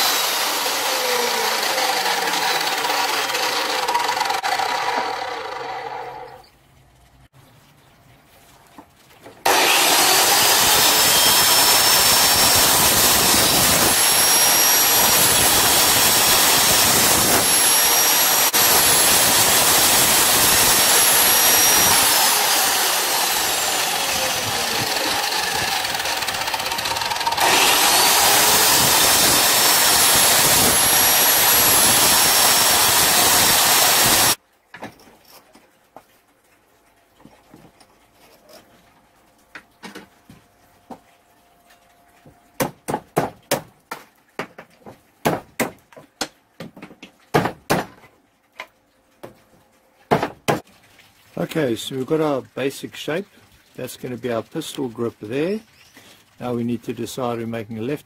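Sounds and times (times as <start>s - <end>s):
mitre saw whining: 0.0s - 6.4s, 9.5s - 34.4s.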